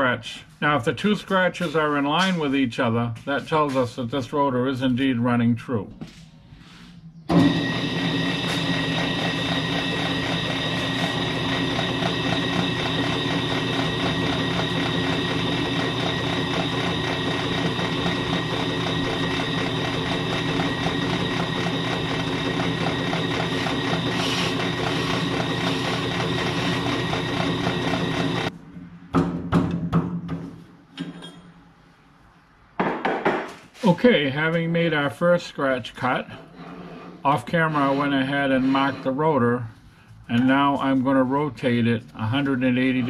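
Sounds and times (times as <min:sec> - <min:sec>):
brake lathe humming and whining: 0:07.3 - 0:28.5.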